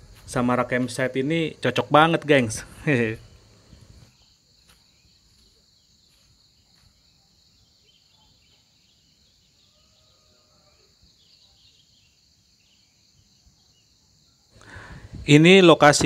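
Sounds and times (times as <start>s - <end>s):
insects chorus: 0.0s - 16.0s
soft bird chirps: 3.0s - 14.9s.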